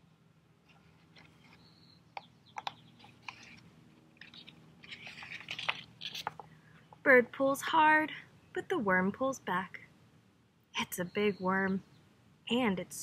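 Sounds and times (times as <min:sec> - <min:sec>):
book page rustling: 0:00.6 - 0:01.7, 0:02.6 - 0:06.5
sharp paper clicks: 0:02.2 - 0:06.5.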